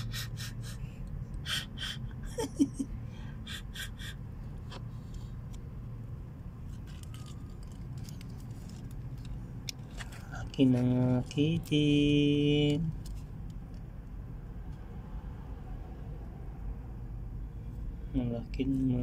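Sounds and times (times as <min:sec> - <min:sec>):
quick breathy puffs: 0:00.0 - 0:02.2
steady low hum: 0:00.0 - 0:19.0.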